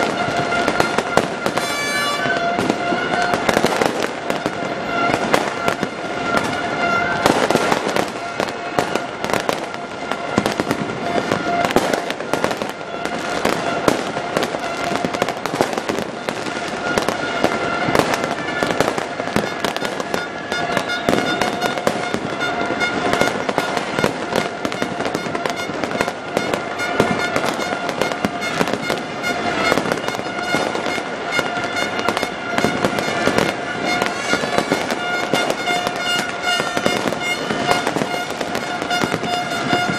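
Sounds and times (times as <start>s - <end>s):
fireworks bursting and crackling: 0.0s - 39.9s.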